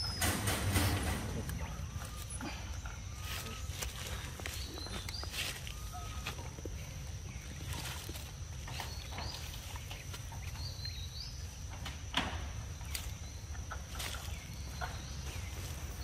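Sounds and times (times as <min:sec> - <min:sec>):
bird chirps: 0:00.0 - 0:11.7.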